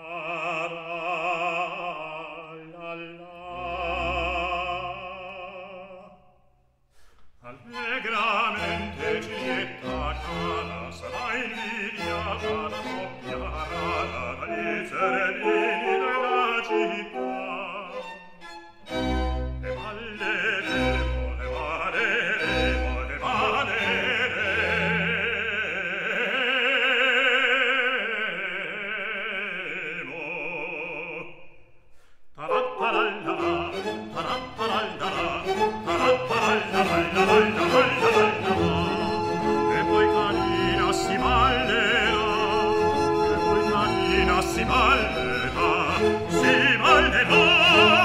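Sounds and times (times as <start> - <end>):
operatic voice singing: 0.0 - 6.3, 7.4 - 18.3, 19.6 - 31.6, 32.4 - 48.0
orchestral accompaniment: 7.8 - 25.5, 32.5 - 48.0.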